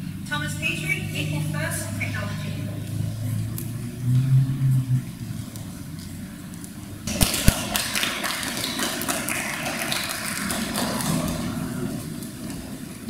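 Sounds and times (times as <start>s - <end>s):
audience clapping: 7.1s - 12.6s.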